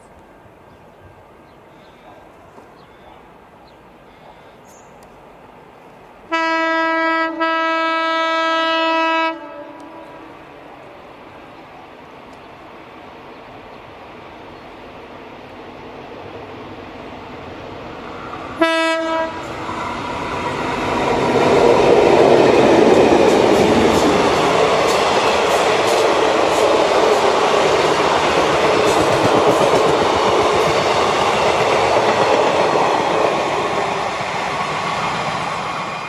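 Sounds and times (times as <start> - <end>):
train passing at speed: 0.0 - 36.0
locomotive horn blast: 6.3 - 10.4, 18.6 - 19.5
wheels clicking over rail joints: 21.3 - 33.2.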